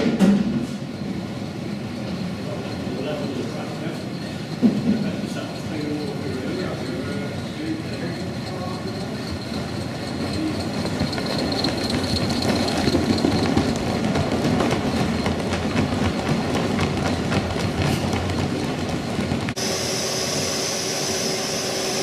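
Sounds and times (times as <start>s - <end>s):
model train wheels clicking on rails: 2.7s - 19.6s.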